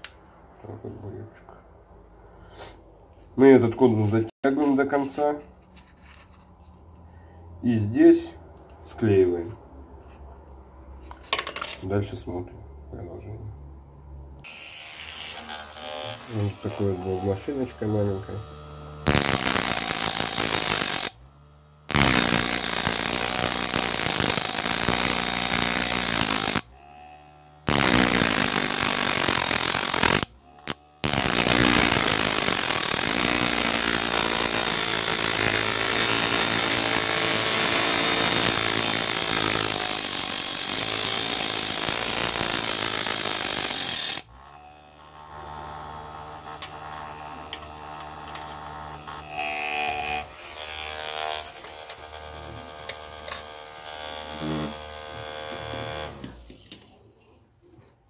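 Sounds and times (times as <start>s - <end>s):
rotary tool motor whine: 14.4s - 56.4s.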